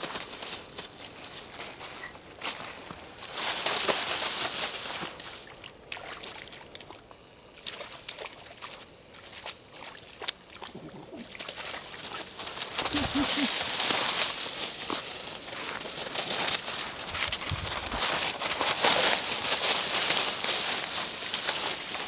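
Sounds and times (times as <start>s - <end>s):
dry leaves rustling and crunching: 0.0s - 5.6s, 10.8s - 22.0s.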